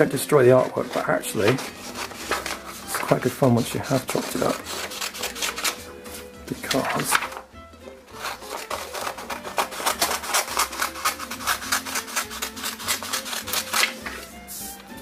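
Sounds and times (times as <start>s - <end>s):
scissors snipping paper: 0.5s - 5.8s, 8.2s - 14.3s.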